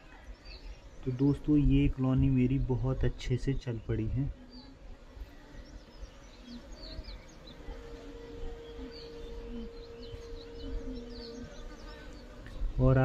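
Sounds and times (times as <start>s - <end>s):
bee humming close: 0.0s - 13.0s
bees buzzing: 0.0s - 13.0s
birds chirping: 0.0s - 13.0s.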